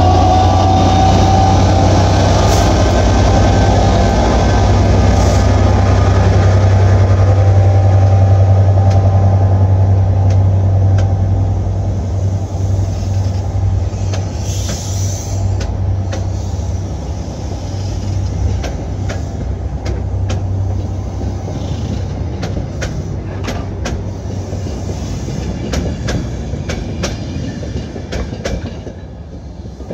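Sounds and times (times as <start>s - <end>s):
diesel locomotive engine drumming: 0.0s - 29.9s
wheels clicking over rail joints: 21.5s - 29.9s.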